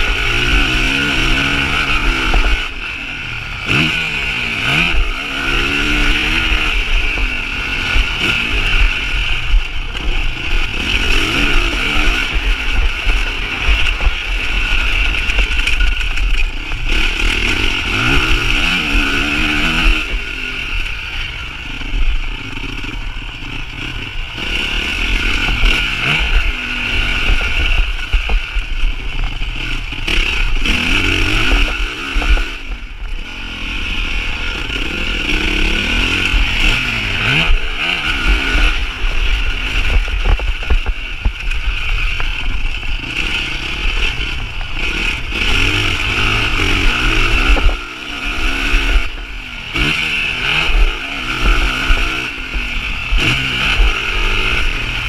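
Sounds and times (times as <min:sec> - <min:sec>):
motocross bike engine revving: 0:00.0 - 0:55.0
wind noise on microphone: 0:34.5 - 0:55.0.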